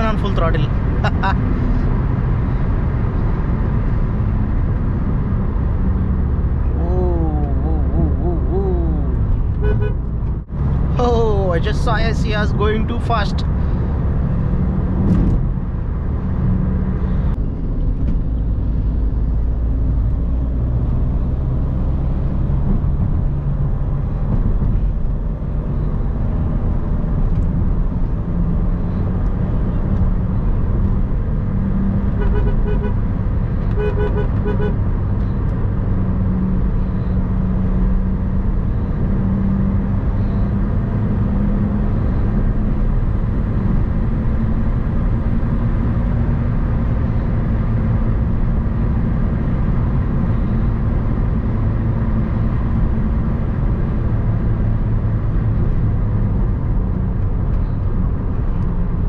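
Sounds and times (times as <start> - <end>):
car engine and tyre drone: 0.0 - 59.0
car horn blasts: 9.6 - 10.1, 32.1 - 33.0, 33.8 - 34.8.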